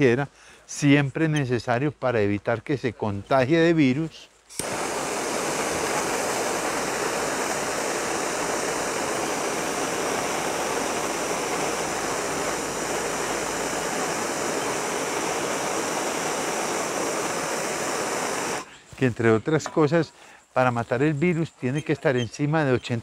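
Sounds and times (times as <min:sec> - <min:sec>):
gas torch hissing: 0:04.5 - 0:18.7.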